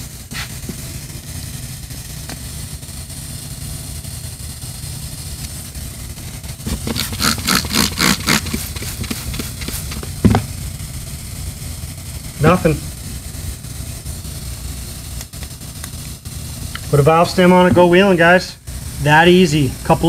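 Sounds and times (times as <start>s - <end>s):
steady low hum: 0.0s - 20.0s
spray bottle squirting: 6.6s - 10.5s
dull knock: 10.2s - 10.5s.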